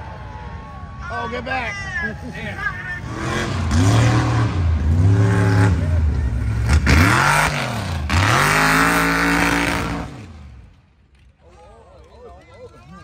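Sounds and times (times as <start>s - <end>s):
truck engine revving: 2.9s - 10.6s.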